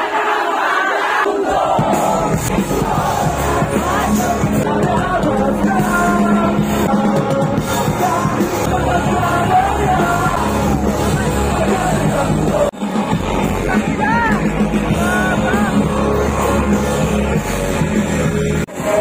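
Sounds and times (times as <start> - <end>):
live rock band playing: 1.8 - 19.0
person singing: 2.5 - 13.0, 13.7 - 17.3.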